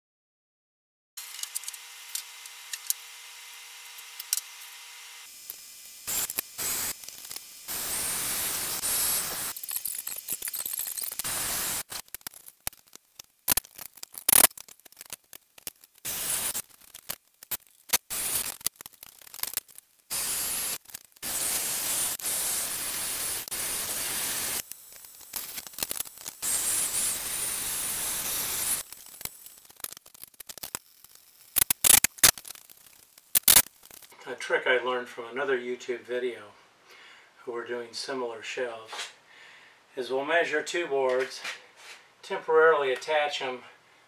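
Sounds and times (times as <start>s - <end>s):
drill boring into concrete: 1.2s - 12.0s, 20.1s - 29.8s.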